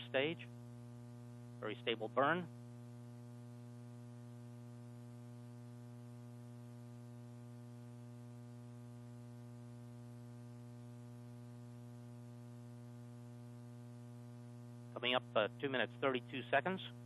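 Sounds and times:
faint hiss: 0.0s - 0.5s
buzzy electrical hum: 0.0s - 17.0s.

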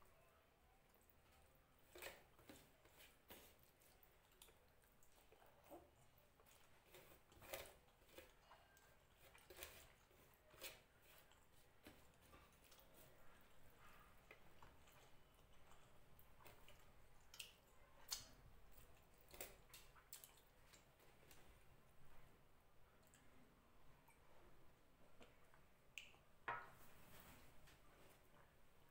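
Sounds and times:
person chewing food: 0.9s - 21.8s.

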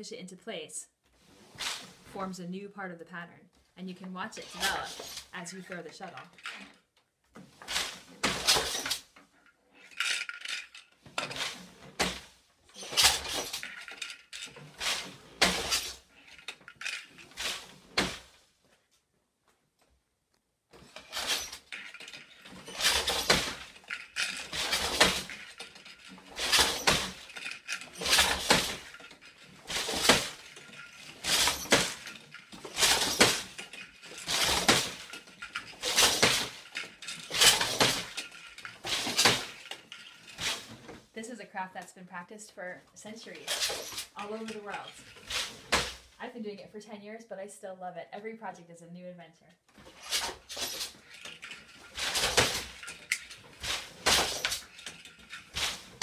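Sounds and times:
loom clacking and knocking: 4.4s - 6.8s, 7.4s - 9.1s, 9.7s - 18.4s, 20.8s - 41.0s, 43.4s - 46.1s, 49.7s - 56.0s.

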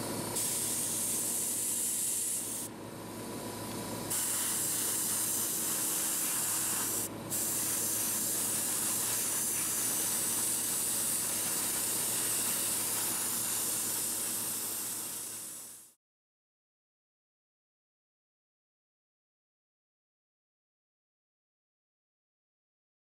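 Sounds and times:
airbrush spraying hiss: 0.4s - 2.7s, 4.1s - 16.0s.

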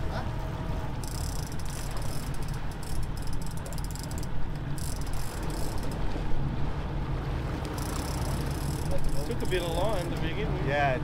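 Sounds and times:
boat engine drone: 0.0s - 11.0s
fishing reel clicking buzz: 1.0s - 6.0s, 7.8s - 9.0s.

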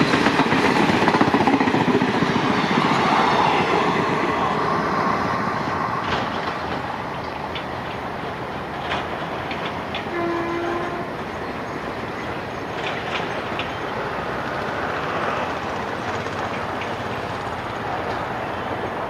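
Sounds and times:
train wheels rumbling: 0.0s - 19.0s
wheels clicking over rail joints: 5.6s - 19.0s
locomotive horn: 10.0s - 11.2s.

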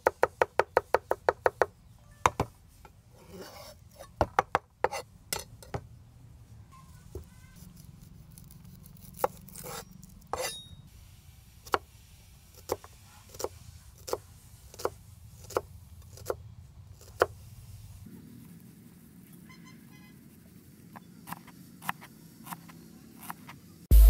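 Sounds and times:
knife slicing scrapes: 3.1s - 4.2s, 4.9s - 5.1s, 7.2s - 10.8s.

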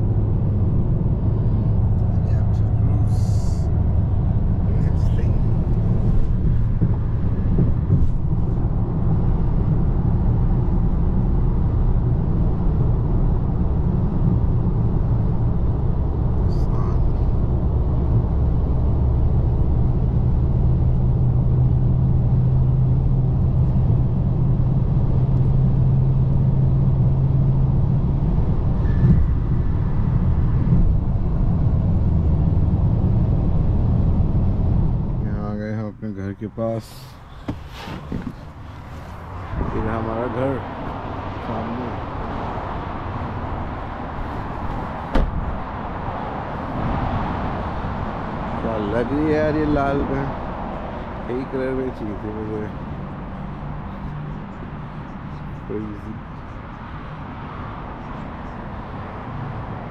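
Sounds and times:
road and tyre rumble in car: 0.0s - 59.9s.

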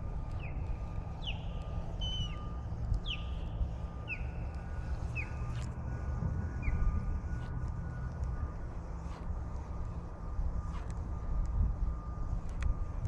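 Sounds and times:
steady low rumble: 0.0s - 13.0s
bird chirping: 0.4s - 5.6s.

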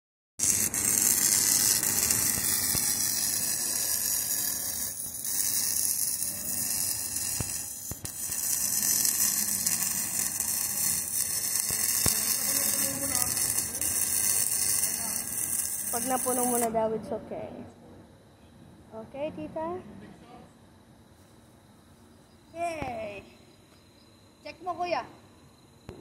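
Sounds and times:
arc welding crackling sizzle: 0.4s - 16.7s.

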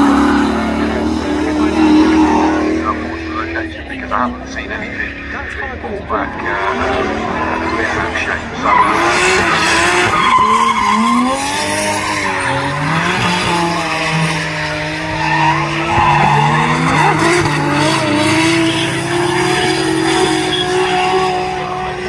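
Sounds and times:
car engines revving: 0.0s - 22.0s
tyres squealing: 8.6s - 21.8s.

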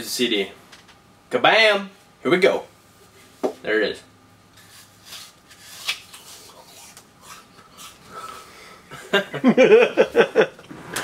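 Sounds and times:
man crunching apple: 4.7s - 8.5s
man laughing: 8.9s - 10.6s.

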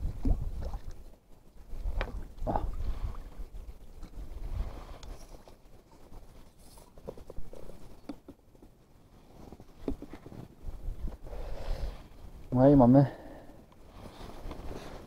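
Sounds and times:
wind buffeting microphone: 0.0s - 0.9s.

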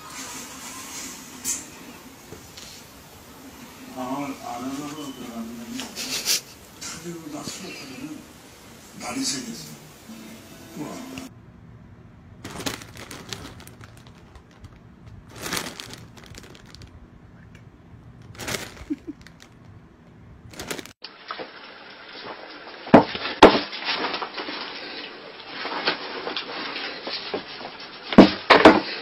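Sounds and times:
plastic bags crinkling: 12.4s - 17.1s, 18.2s - 19.8s, 20.5s - 21.0s.

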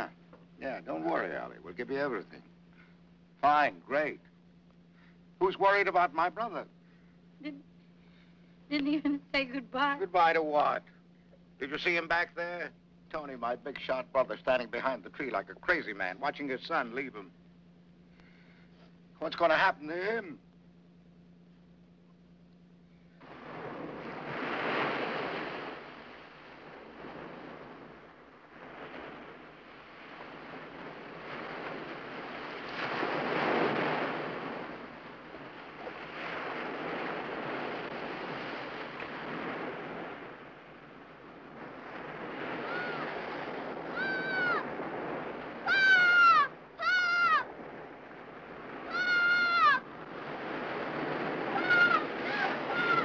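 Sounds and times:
ocean surf breaking: 23.2s - 53.0s
gulls crying: 41.8s - 53.0s.

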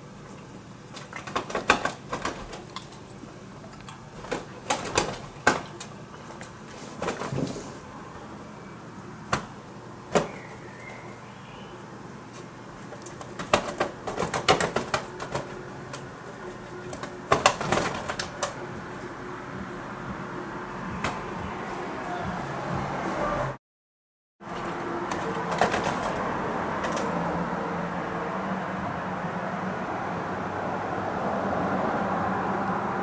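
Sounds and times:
pigeon wing slaps and flapping: 0.9s - 3.0s, 4.2s - 7.6s, 9.3s - 10.5s, 12.8s - 16.1s, 16.9s - 18.6s, 24.5s - 27.1s.

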